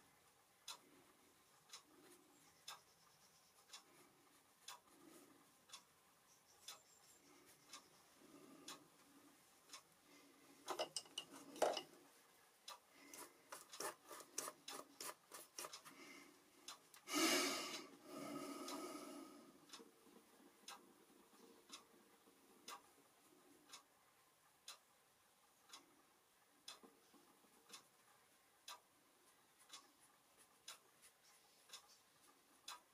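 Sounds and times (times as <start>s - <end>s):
clock ticking faintly: 0.0s - 32.9s
brush scrubbing: 13.1s - 15.9s.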